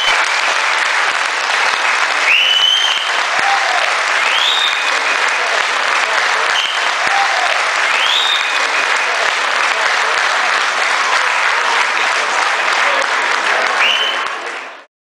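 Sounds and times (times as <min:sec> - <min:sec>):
crowd applauding: 0:00.0 - 0:14.9
voices: 0:02.7 - 0:14.8.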